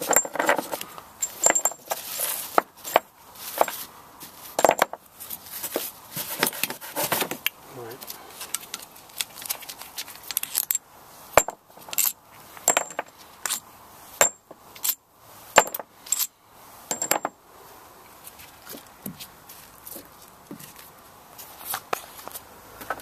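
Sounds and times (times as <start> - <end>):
steel bolts clinking: 0.0 - 2.0, 11.4 - 13.6, 14.2 - 15.0, 15.6 - 16.3, 16.9 - 17.4.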